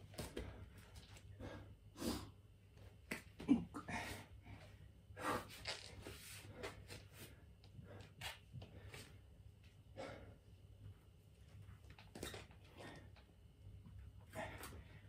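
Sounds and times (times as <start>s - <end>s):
man breathing heavily: 0.2s - 2.4s, 3.8s - 5.6s, 9.8s - 10.6s, 14.2s - 15.0s.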